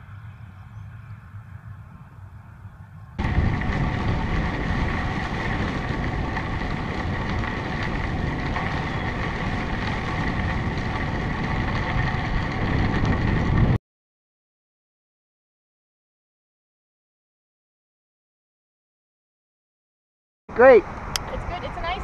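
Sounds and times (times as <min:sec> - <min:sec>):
wind rumbling on microphone: 0:00.0 - 0:13.8
bicycle tyres rolling on gravel: 0:02.7 - 0:13.8.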